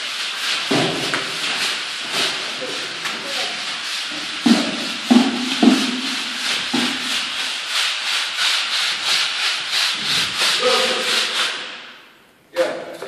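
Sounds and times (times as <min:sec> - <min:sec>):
tool scraping plaster wall: 0:00.0 - 0:11.9
heavier knocks: 0:04.4 - 0:07.2.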